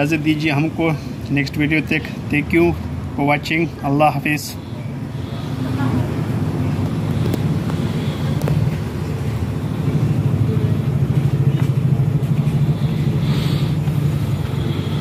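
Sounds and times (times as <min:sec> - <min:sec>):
washing machine spinning: 0:05.0 - 0:15.0.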